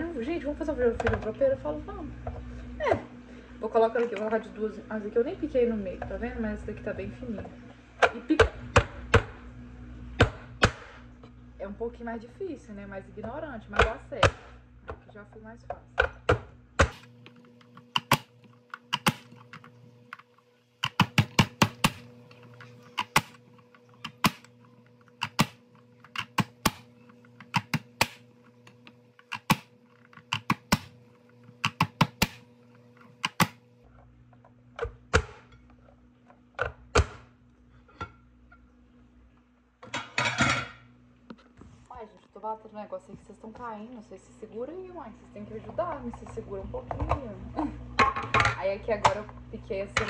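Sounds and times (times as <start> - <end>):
vegetable chopper plastic clacks: 16.8 - 32.4.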